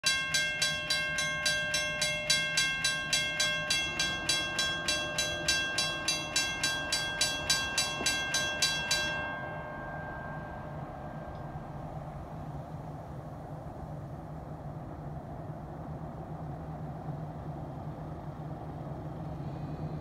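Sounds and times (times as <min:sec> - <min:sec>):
railroad crossing bell ringing: 0:00.0 - 0:14.8.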